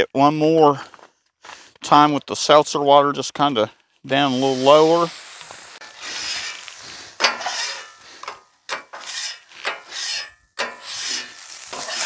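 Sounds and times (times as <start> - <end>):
water sizzling on hot griddle: 4.2 - 8.3, 9.6 - 12.0
metal scraper scraping griddle: 5.8 - 12.0.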